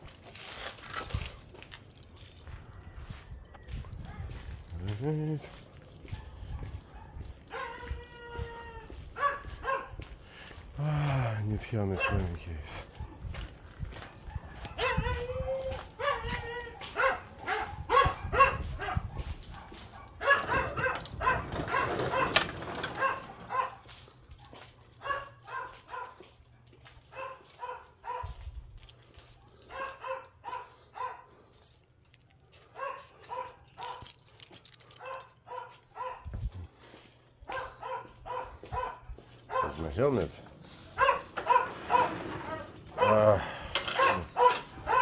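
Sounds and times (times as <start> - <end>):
dog yipping and whimpering: 6.3 - 10.0, 14.3 - 23.8, 41.0 - 45.0.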